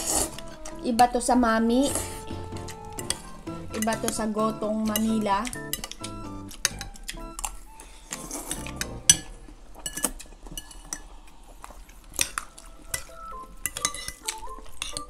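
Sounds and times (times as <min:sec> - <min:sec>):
cutlery clinking on ceramic bowls: 0:02.3 - 0:11.1, 0:12.2 - 0:15.0.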